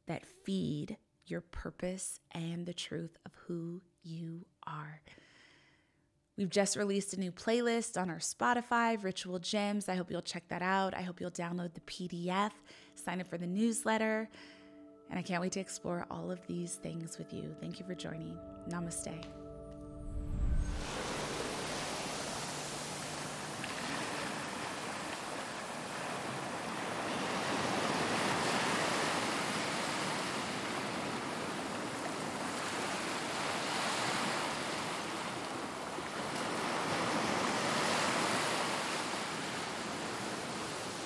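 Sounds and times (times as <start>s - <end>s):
ocean waves washing on beach: 20.6s - 41.0s.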